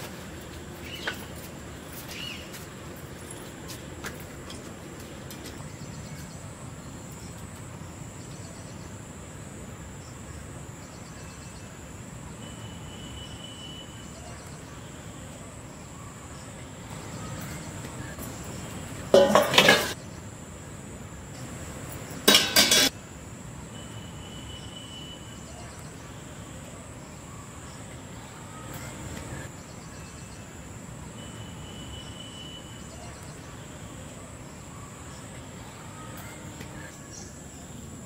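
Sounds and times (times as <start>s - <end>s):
pots and utensils clanking: 19.1s - 20.0s, 22.2s - 22.9s.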